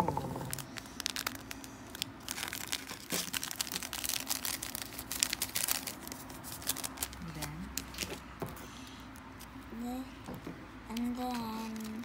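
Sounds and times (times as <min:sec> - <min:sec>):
foil sachet crinkling: 0:00.1 - 0:08.2, 0:11.2 - 0:12.0.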